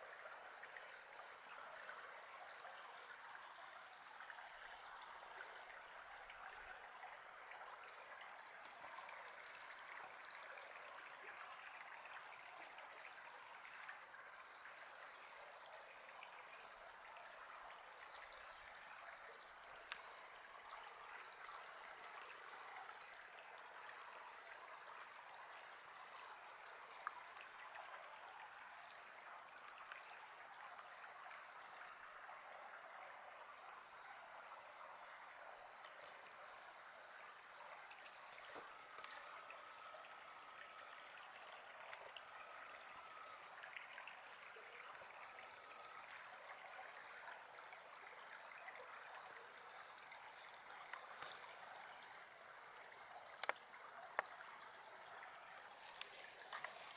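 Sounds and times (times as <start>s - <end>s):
creek trickling over cobbles: 0.0s - 56.9s
small clicks: 53.3s - 54.3s.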